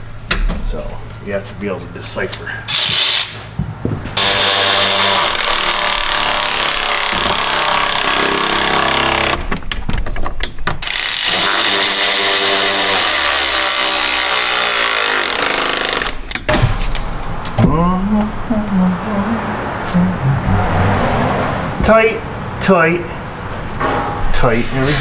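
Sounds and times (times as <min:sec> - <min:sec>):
power tool motor running: 0:02.7 - 0:03.4, 0:04.2 - 0:09.4, 0:10.8 - 0:16.2.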